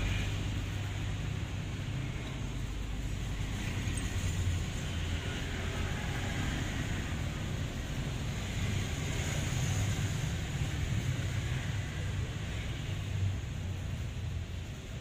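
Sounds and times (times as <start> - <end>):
background noise: 0.0 - 15.0.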